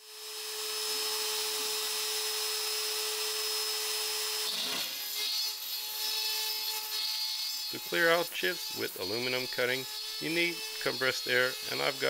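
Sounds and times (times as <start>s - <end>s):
router milling aluminium whine: 6.9s - 12.0s.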